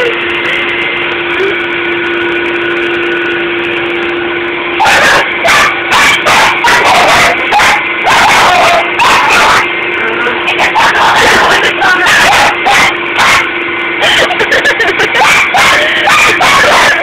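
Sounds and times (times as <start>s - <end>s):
vacuum cleaner humming: 0.0s - 17.0s
dog barking: 4.8s - 9.7s, 10.5s - 17.0s.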